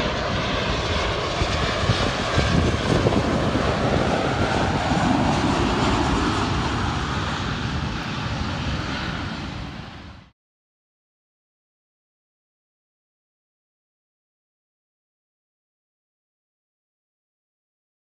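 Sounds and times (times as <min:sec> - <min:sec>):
jet engine rumble overhead: 0:00.0 - 0:10.4.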